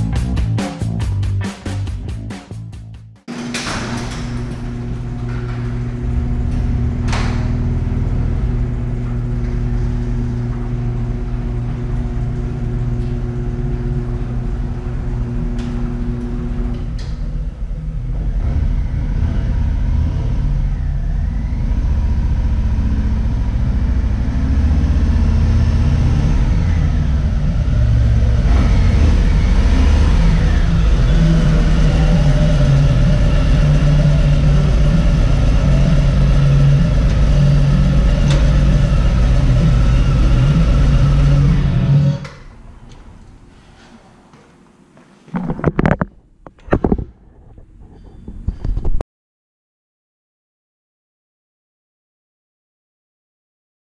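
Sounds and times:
motorcycle engine rumbling: 3.3 - 44.7.

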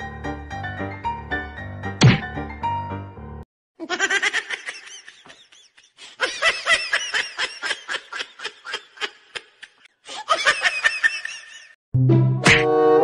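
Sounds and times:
person laughing hard: 3.8 - 11.8.

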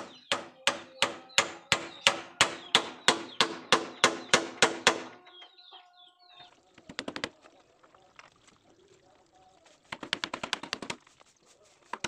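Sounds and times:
hammer nailing wooden planks: 0.0 - 5.2, 9.9 - 11.0.

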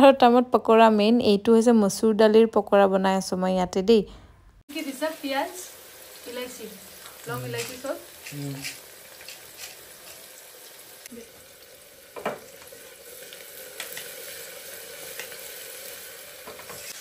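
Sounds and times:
oil sizzling: 4.7 - 17.0.

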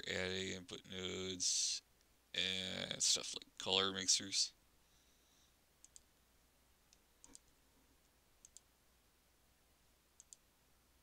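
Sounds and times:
computer mouse clicks: 5.8 - 6.1, 6.9 - 7.6, 8.4 - 8.7, 10.2 - 10.5.

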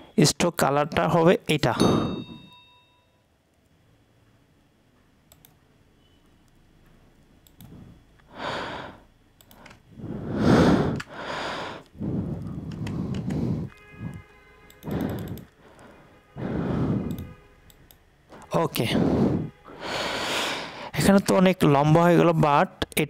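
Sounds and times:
loud breaths: 7.7 - 17.4, 18.3 - 21.0
mouse clicks: 14.7 - 15.5.

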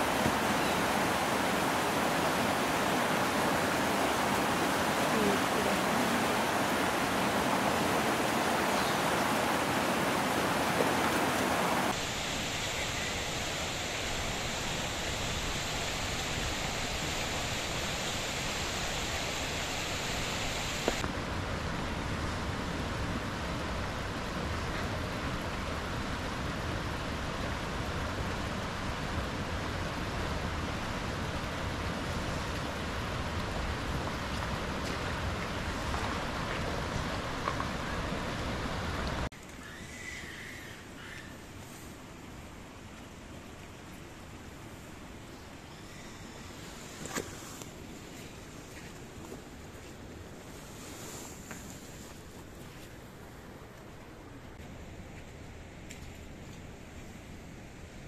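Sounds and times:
hot spring water rushing: 0.0 - 40.2.

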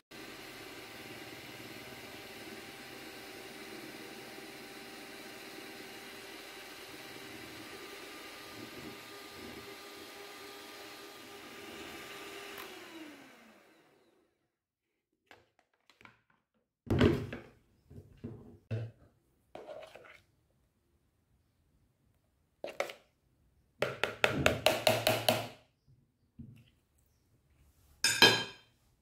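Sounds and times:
electric hand mixer whine: 0.0 - 14.4.

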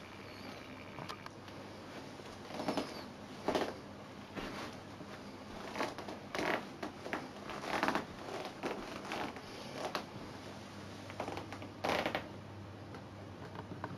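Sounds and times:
footsteps on carpet: 1.9 - 10.0.

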